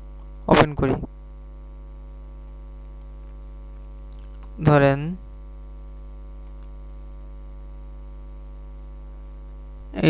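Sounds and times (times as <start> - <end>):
electrical mains hum: 0.0 - 10.0
man speaking: 4.6 - 5.2.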